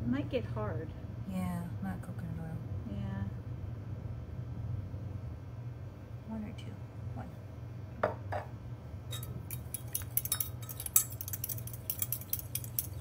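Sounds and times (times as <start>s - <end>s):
metal spoon clinking against glass: 9.1s - 13.0s.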